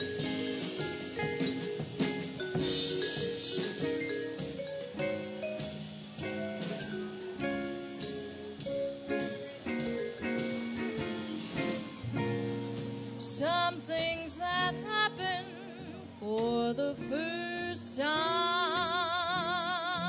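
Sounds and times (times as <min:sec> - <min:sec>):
guitar chords: 0:00.0 - 0:16.2
bass: 0:00.0 - 0:20.0
woman singing with vibrato: 0:13.2 - 0:20.0.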